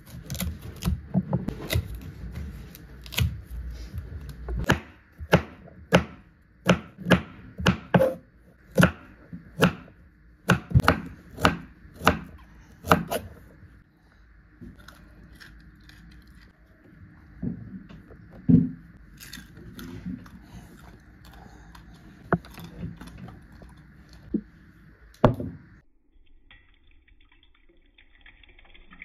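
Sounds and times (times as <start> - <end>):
knife chopping on wooden board: 4.6 - 8.2, 10.5 - 13.3.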